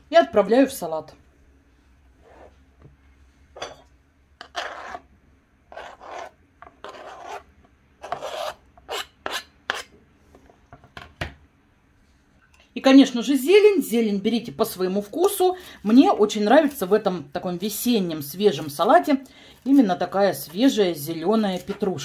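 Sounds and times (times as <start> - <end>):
knife scraping cutting board: 2.2 - 2.6, 4.4 - 5.1, 5.7 - 9.9.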